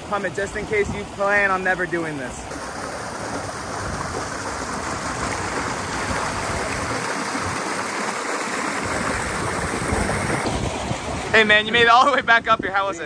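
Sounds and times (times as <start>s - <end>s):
water rushing down slides: 2.5s - 12.3s
wind buffeting microphone: 2.5s - 13.0s.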